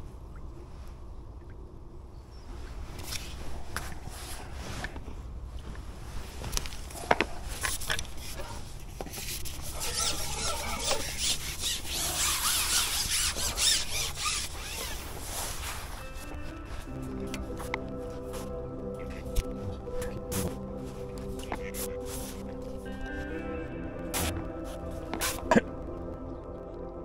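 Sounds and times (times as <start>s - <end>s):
fishing pole squeaking: 9.4s - 17.8s, 21.0s - 22.8s, 24.2s - 25.6s.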